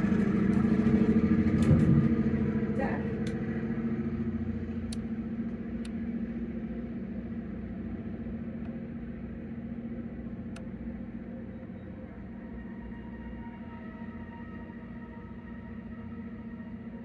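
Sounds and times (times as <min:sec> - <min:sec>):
freight train rumbling past: 0:00.0 - 0:10.2.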